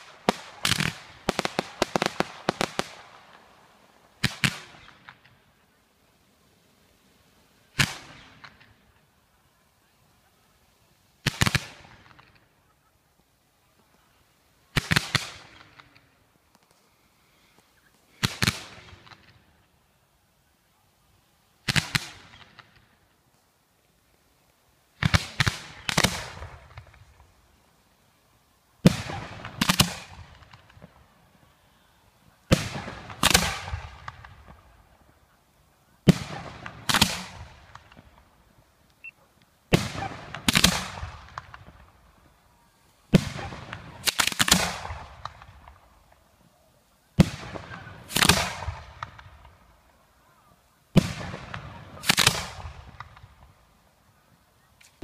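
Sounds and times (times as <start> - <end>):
fireworks bangs: 0.0 - 5.4, 7.7 - 8.9, 11.2 - 12.6, 14.7 - 16.2, 18.2 - 19.6, 21.6 - 23.0, 25.0 - 27.4, 28.8 - 31.4, 32.2 - 35.3, 35.9 - 38.4, 39.7 - 42.4, 43.0 - 46.3, 47.1 - 49.9, 50.9 - 53.7
fireworks crackling: 0.0 - 55.0.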